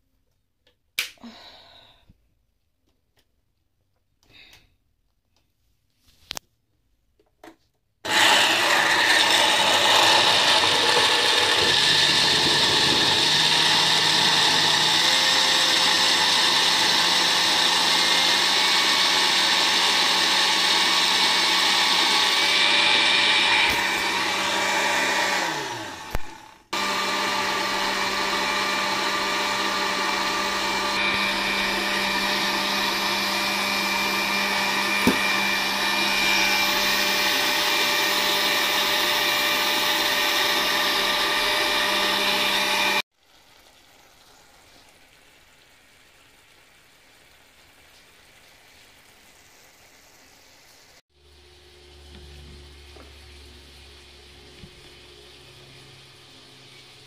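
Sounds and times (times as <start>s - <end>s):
blender motor running: 8.0s - 43.1s.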